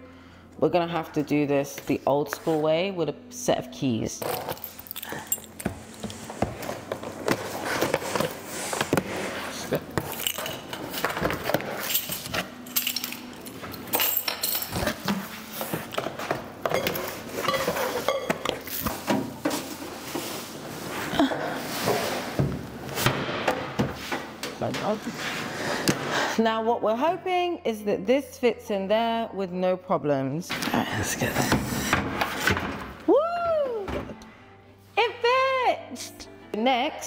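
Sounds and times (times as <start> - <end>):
keys jangling: 4.3 - 6.0, 11.8 - 14.9.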